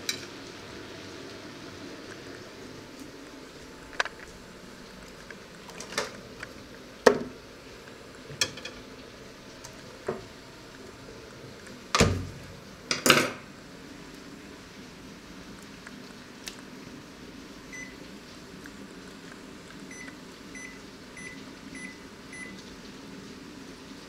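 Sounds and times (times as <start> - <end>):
cookware and utensils clinking: 8.4 - 8.9.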